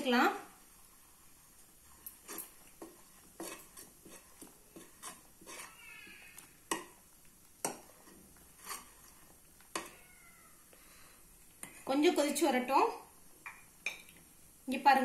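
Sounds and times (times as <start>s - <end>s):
spoon clinking and scraping pan: 1.8s - 7.0s, 7.6s - 10.0s.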